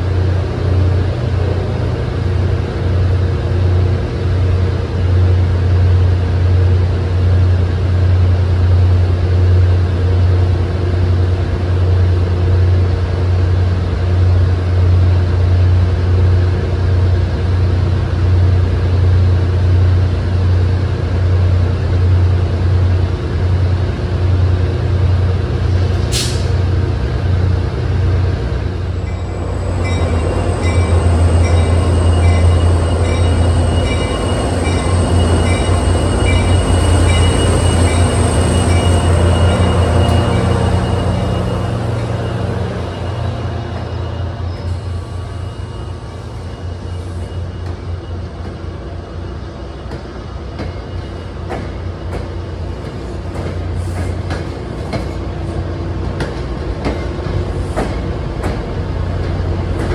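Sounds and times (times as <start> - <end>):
diesel locomotive passing: 0.0 - 59.9
low rumble of trains: 0.0 - 59.9.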